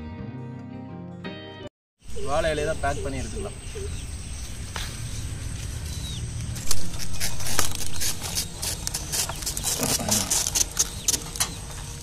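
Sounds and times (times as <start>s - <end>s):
banana leaves rustling: 4.5s - 11.8s.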